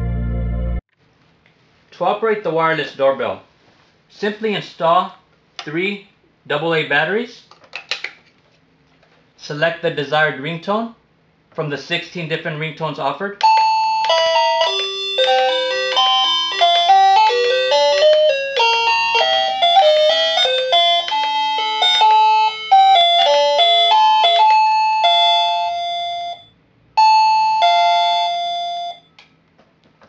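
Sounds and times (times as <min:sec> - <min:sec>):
electronic doorbell chime tunes: 0:13.4 - 0:29.2
two-note ding-dong chime: 0:27.0 - 0:29.0.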